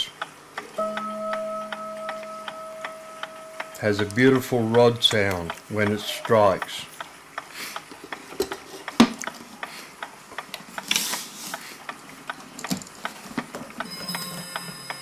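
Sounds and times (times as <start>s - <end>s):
wall clock ticking: 0.0s - 15.0s
clock gong rod ringing: 0.8s - 5.4s, 13.8s - 15.0s.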